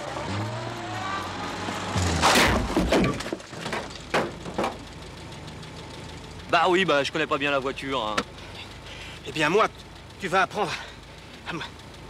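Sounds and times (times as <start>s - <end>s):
car crashing through barrier: 1.8s - 4.8s.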